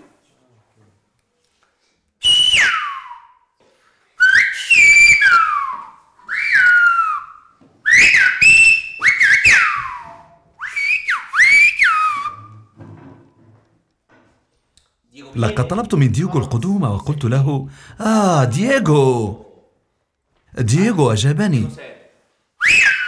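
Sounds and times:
finger whistling: 2.2 - 3.6, 4.2 - 12.8, 22.6 - 23.0.

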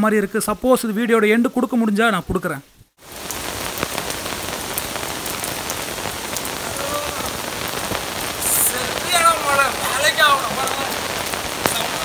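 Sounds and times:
rain on hard surfaces: 2.4 - 12.0.

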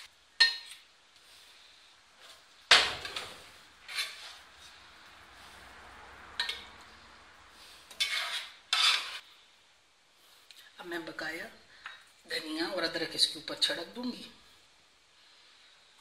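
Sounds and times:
metal ladle clinking on pan: 6.4 - 6.7.

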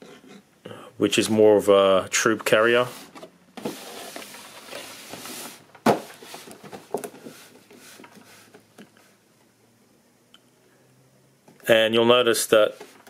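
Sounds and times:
cardboard box rubbing and scraping: 2.8 - 6.6.

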